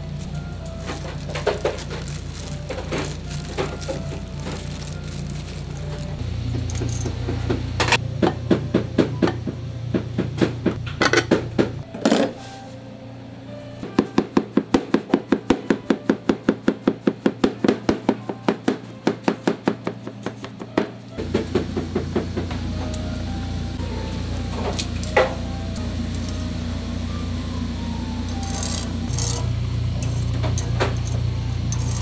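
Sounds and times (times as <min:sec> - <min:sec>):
steady low hum: 0:00.0 - 0:11.9, 0:21.1 - 0:32.0.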